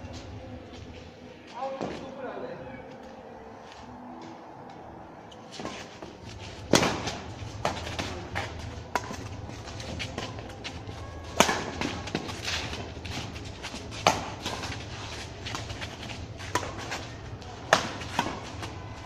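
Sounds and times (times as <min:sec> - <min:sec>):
steady low hum: 0:02.8 - 0:19.0
rackets hitting shuttlecock: 0:05.6 - 0:18.8.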